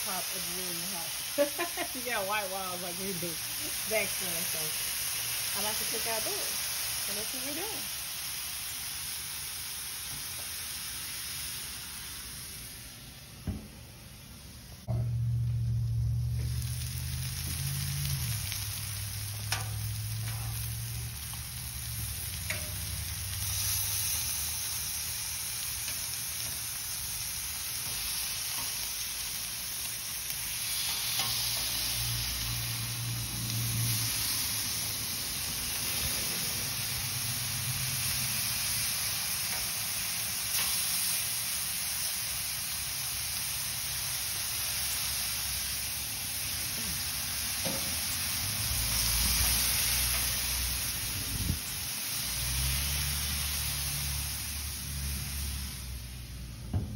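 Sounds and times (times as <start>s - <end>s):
meat sizzling on a griddle: 0.0s - 56.9s
metal tongs clicking on griddle: 19.4s - 20.6s, 22.3s - 23.0s.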